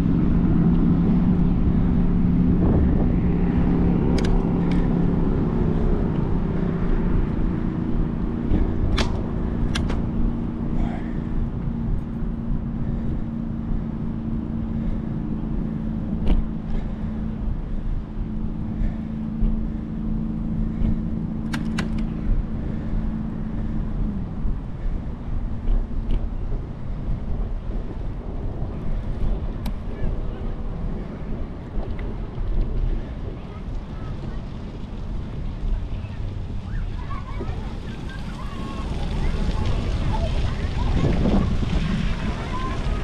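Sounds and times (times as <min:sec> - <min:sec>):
steady engine hum: 0:00.0 - 0:43.0
sharp clicks: 0:21.4 - 0:22.1.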